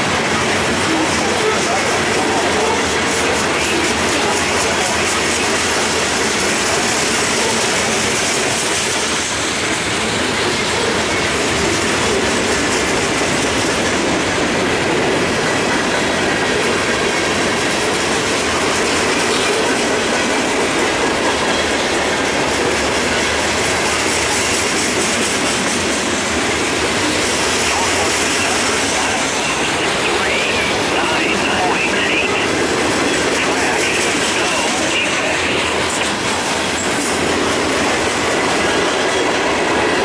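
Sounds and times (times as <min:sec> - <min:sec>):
freight train wheels on rails: 0:00.0 - 0:40.0.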